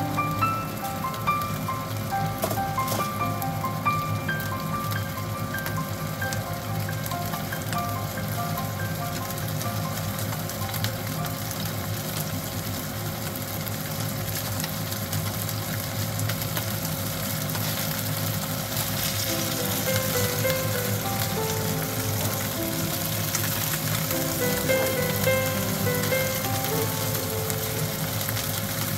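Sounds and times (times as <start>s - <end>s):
light background music: 0.0s - 12.4s, 18.9s - 28.9s
fish sizzling in a frying pan: 0.0s - 28.9s.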